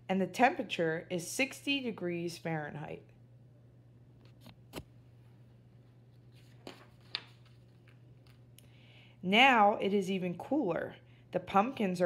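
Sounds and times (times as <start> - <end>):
faint steady hum: 0.0 - 12.0
page turning paper rustle: 6.1 - 8.5.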